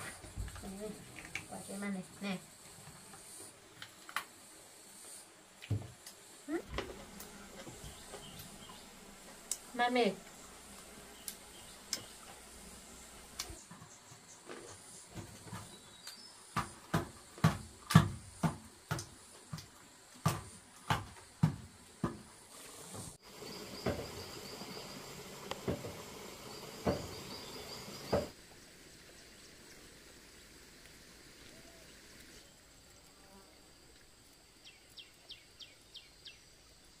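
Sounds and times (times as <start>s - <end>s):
insects chirping: 0.0s - 37.0s
hiss: 1.4s - 13.6s, 22.5s - 35.1s.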